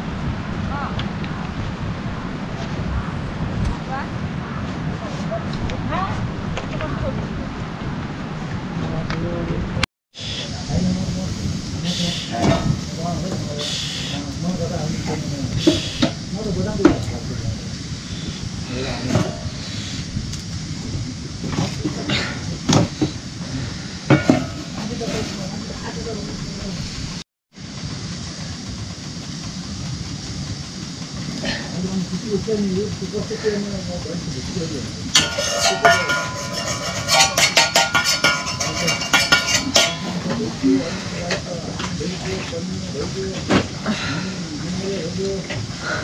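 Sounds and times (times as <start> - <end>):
steady low rush: 0.0 - 46.0
iron pan knocking on stove: 24.1 - 24.8, 35.2 - 40.3
sharp knocks with metallic ring: 35.2 - 40.4.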